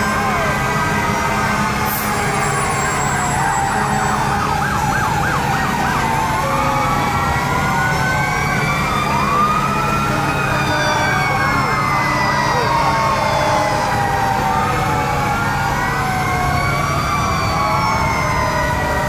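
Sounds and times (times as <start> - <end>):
fast siren yelp: 0.0 - 19.0
sirens wailing: 0.0 - 19.0.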